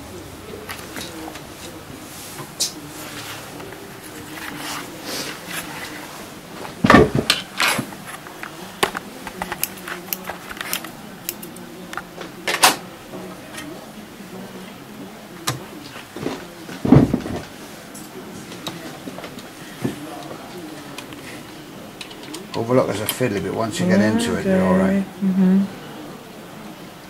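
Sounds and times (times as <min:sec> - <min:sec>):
plastic parts clicking and knocking: 0:06.9 - 0:12.8.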